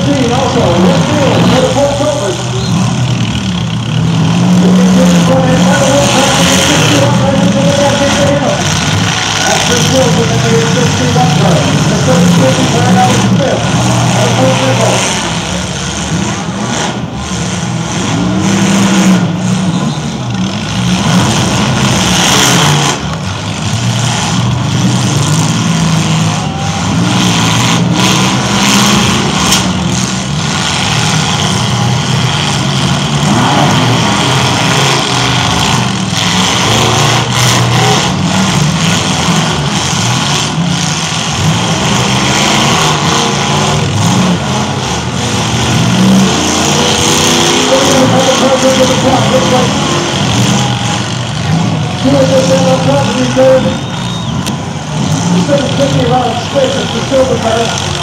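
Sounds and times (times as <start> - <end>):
car engines revving: 0.0 - 58.0.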